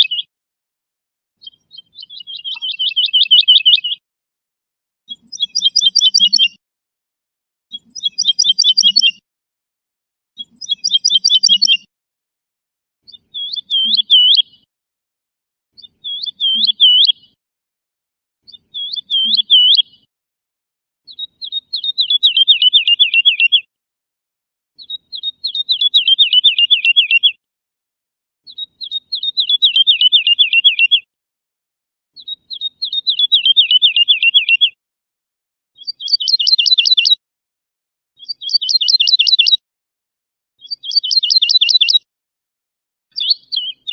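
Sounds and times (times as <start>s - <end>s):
lark singing: 0.0s - 0.3s, 1.4s - 4.0s, 5.1s - 6.6s, 7.7s - 9.2s, 10.4s - 11.9s, 13.0s - 14.7s, 15.8s - 17.4s, 18.4s - 20.1s, 21.1s - 23.7s, 24.8s - 27.4s, 28.5s - 31.1s, 32.2s - 34.8s, 35.8s - 37.2s, 38.2s - 39.6s, 40.6s - 42.1s, 43.1s - 43.9s.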